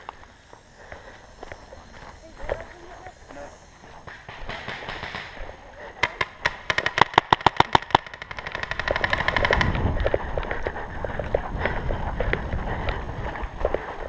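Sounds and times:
paintball marker firing shots: 4.0 - 10.1.

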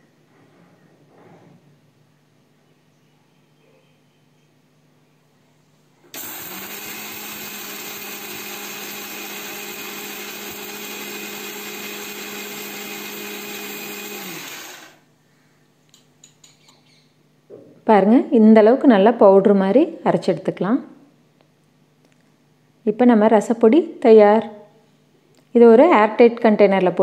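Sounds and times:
mixer grinder motor grinding spices: 6.2 - 15.0.

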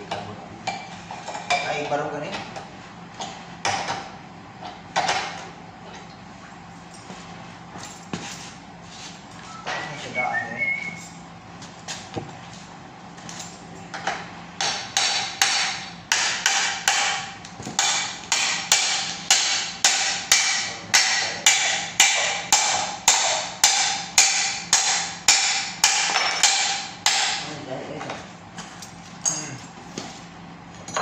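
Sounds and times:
hammer striking steel: 14.6 - 27.4.

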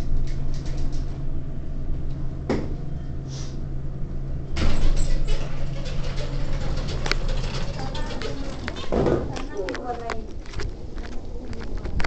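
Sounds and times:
elevator humming: 0.0 - 12.0
rattling and rustling: 4.6 - 12.0.

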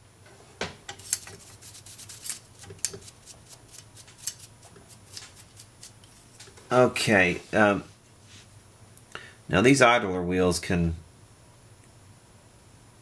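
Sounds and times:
small parts clicking and tapping: 0.9 - 3.2.

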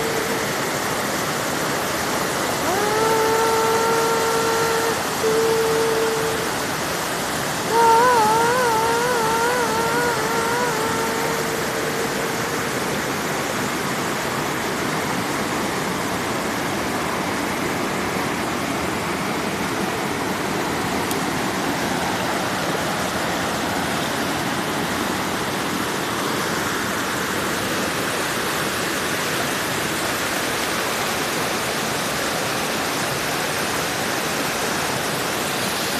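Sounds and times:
wavering held tone: 0.0 - 14.7
water flowing: 0.0 - 35.9.

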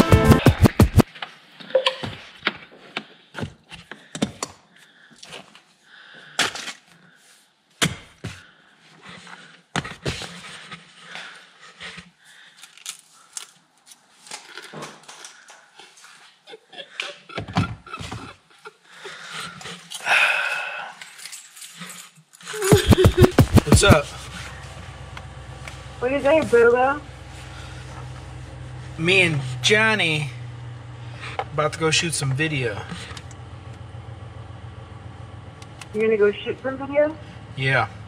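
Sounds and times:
music: 0.0 - 0.7.

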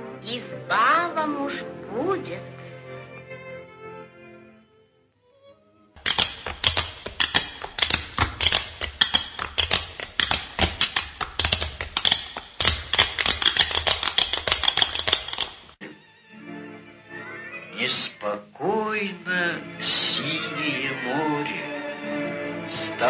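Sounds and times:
rapid clatter of clicks: 6.0 - 15.8.

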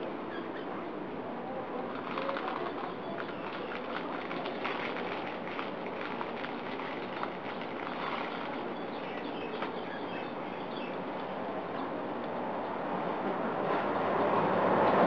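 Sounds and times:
outdoor background noise: 0.0 - 15.0
small birds chirping: 2.1 - 4.6, 7.1 - 11.1.

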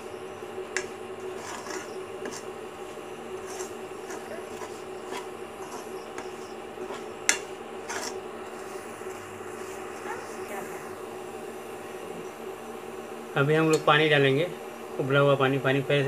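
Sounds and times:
steady low hum: 0.0 - 16.0
ladle scraping pan: 0.7 - 10.0.

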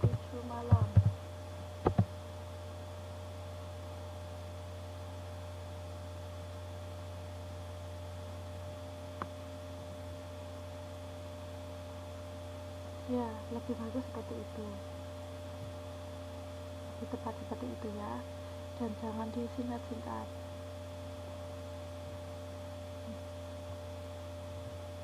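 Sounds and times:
electrical mains hum: 0.0 - 25.0
faint steady tones: 9.2 - 25.0.

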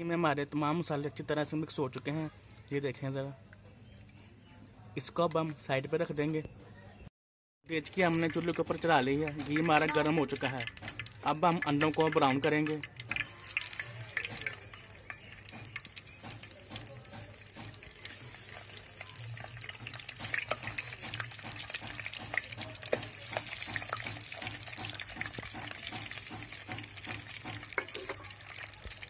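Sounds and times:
eggs frying with crackling pops: 7.7 - 29.0.

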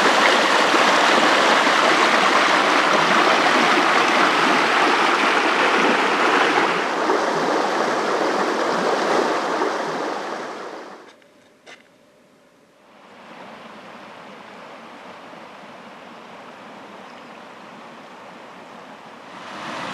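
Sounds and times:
stream rushing over stones: 0.0 - 11.0, 19.3 - 19.9.

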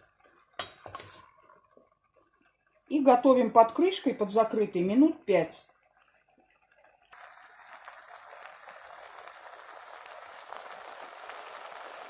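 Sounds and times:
vegetables sizzling in a pot: 7.1 - 12.0.

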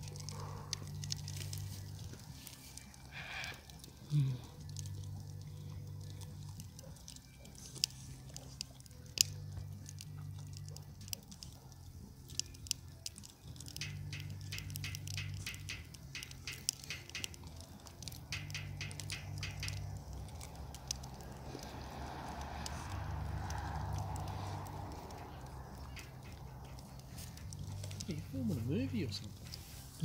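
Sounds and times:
dog crunching chestnut shells: 0.0 - 28.3.

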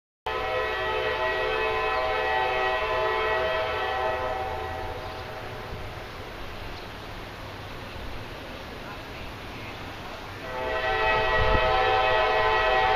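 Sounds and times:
locomotive air horn blast: 0.3 - 6.0, 10.4 - 12.9.

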